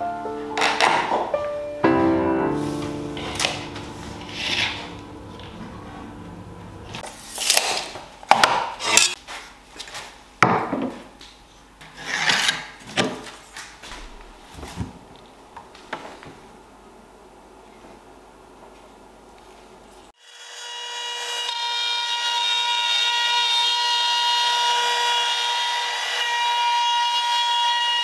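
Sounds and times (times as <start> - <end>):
background music: 0.0 - 7.0
hand and tools rubbing wood: 2.6 - 7.4.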